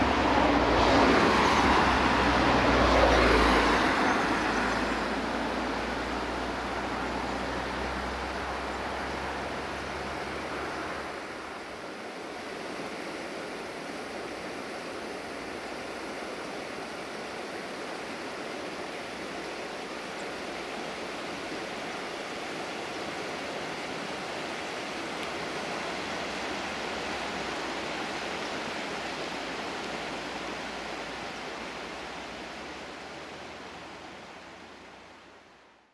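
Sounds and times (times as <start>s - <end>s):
steady rushing noise: 0.0s - 35.9s.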